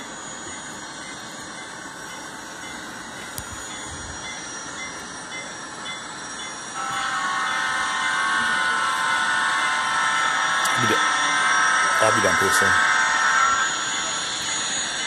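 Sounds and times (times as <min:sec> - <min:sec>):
turbine whine and hiss: 0:00.0 - 0:15.0
loud buzzing tone: 0:06.7 - 0:15.0.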